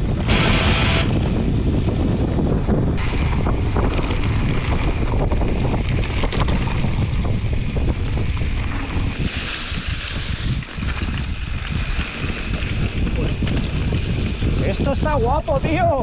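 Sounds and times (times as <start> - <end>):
wind buffeting microphone: 0.0 - 16.0
bike knocks and rattles: 3.0 - 9.2.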